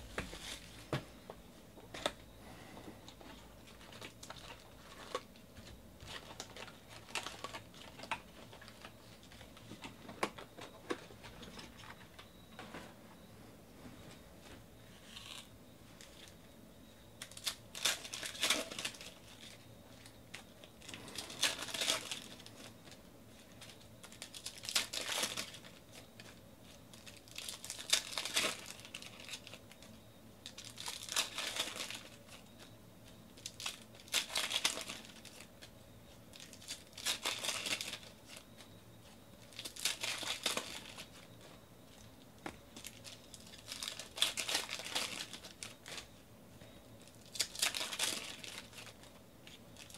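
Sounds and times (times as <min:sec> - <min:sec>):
foil wrappers tearing and crinkling: 0:06.0 - 0:09.0, 0:17.2 - 0:19.6, 0:20.3 - 0:22.7, 0:23.5 - 0:29.8, 0:30.4 - 0:32.5, 0:33.4 - 0:35.6, 0:36.3 - 0:38.4, 0:39.4 - 0:41.2, 0:42.8 - 0:46.1, 0:47.0 - 0:49.9.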